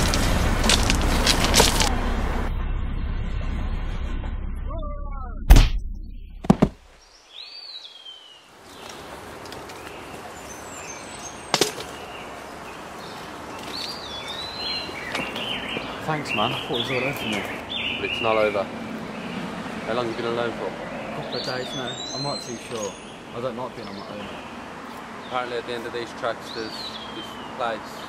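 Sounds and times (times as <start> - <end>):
loud thud: 5.4 - 6.9
birds chirping: 6.9 - 28.0.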